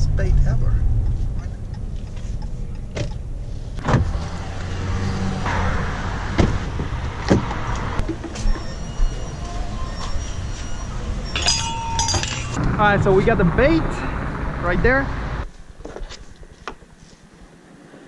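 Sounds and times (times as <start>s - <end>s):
engine and road rumble: 0.0s - 18.0s
car door unlatching and opening: 2.8s - 4.4s
hiss of outdoor noise: 15.4s - 18.0s.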